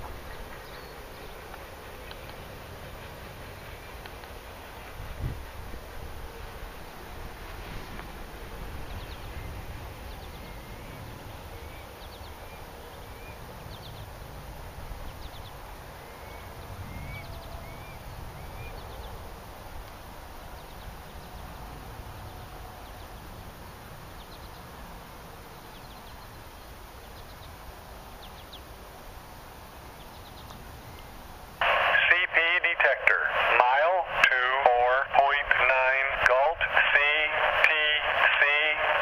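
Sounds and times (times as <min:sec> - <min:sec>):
faint high ticking calls: 0:00.0 - 0:14.3, 0:14.9 - 0:35.4
bird rising chirp: 0:15.1 - 0:19.3.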